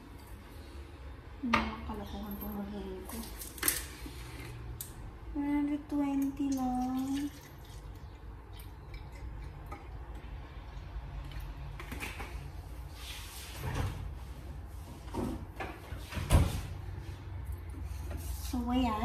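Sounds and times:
milk pouring into a glass jar: 6.5s - 10.1s.

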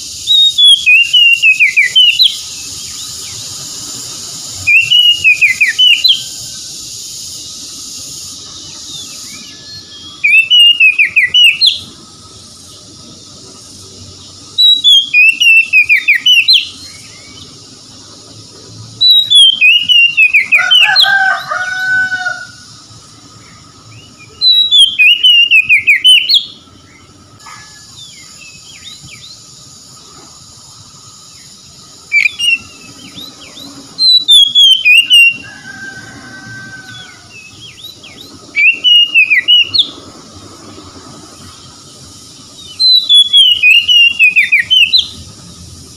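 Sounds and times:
magpie-robin singing whistled phrases: 0.1s - 3.4s, 4.6s - 6.3s, 8.8s - 11.9s, 14.5s - 17.5s, 19.0s - 21.0s, 23.9s - 26.6s, 32.1s - 35.4s, 37.4s - 40.0s, 42.6s - 45.2s.

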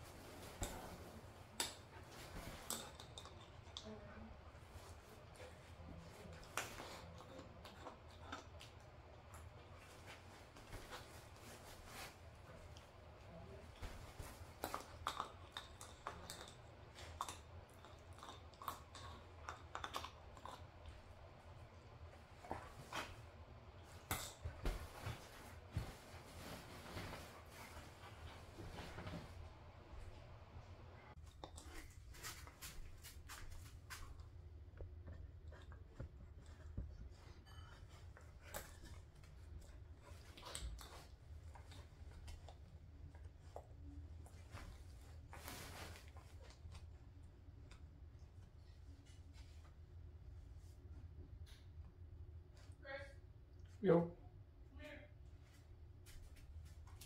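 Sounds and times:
low steady hum: 0.0s - 57.0s
dog chewing rope toy: 14.0s - 23.0s
rustling on bedding: 22.2s - 30.6s, 44.4s - 46.6s.

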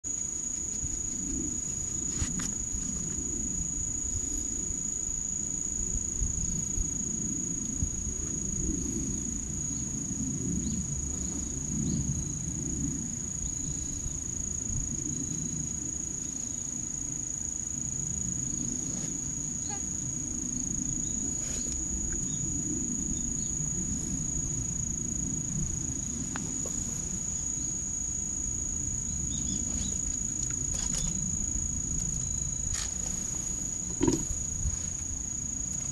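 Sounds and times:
crickets chirping: 0.0s - 35.9s
low uneven rumble: 17.7s - 35.9s.

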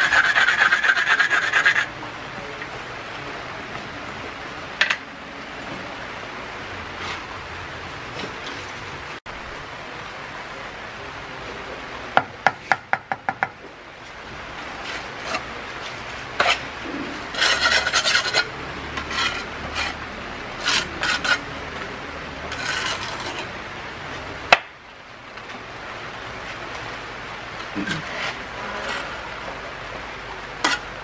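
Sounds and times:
mortar scraping on earth blocks: 14.6s - 21.5s, 22.5s - 23.6s, 27.6s - 29.3s, 30.6s - 30.9s.

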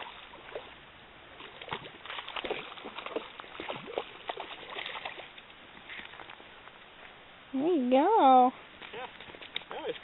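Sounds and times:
light water splashing: 0.0s - 7.0s.

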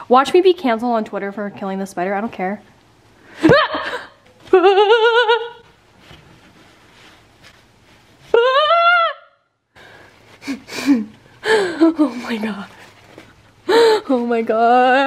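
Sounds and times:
woman squealing: 8.3s - 9.4s.

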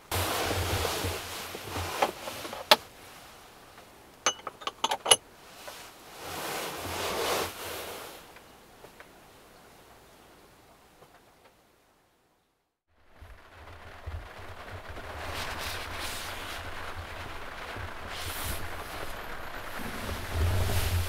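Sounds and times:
sleeping bag rustling: 0.0s - 3.6s, 5.0s - 8.3s, 15.2s - 21.0s.

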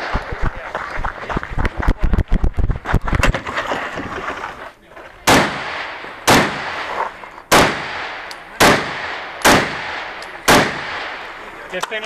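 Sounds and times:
rifle shots echoing: 5.2s - 11.5s.

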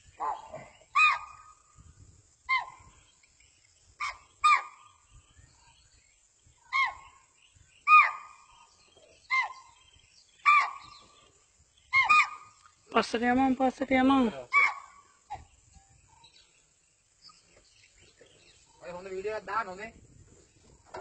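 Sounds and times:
animal high-pitched calls: 0.2s - 1.6s, 2.5s - 2.9s, 4.0s - 4.9s, 6.7s - 7.2s, 7.8s - 8.5s, 9.3s - 9.8s, 10.4s - 11.1s, 11.9s - 12.6s, 14.5s - 15.5s.

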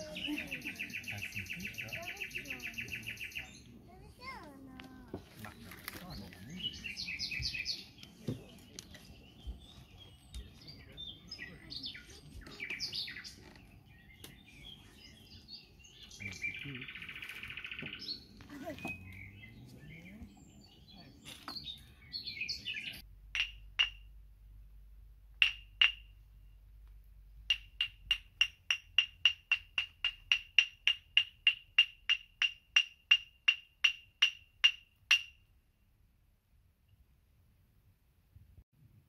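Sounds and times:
small percussion instrument strikes: 23.3s - 24.2s, 25.4s - 26.2s, 27.4s - 35.5s.

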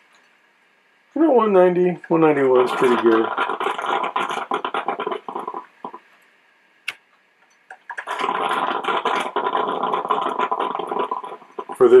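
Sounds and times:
coffee maker gurgling: 1.2s - 6.0s, 7.8s - 12.0s.

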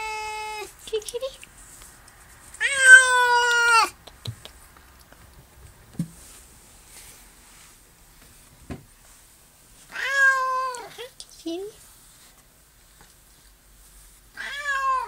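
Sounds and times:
cat meowing: 0.0s - 0.7s, 2.6s - 4.0s, 9.9s - 11.0s, 14.4s - 15.0s.

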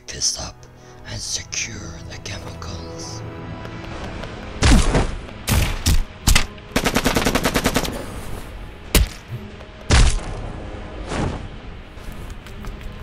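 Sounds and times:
background music: 0.0s - 13.0s
rapid automatic gunfire: 6.8s - 8.0s.

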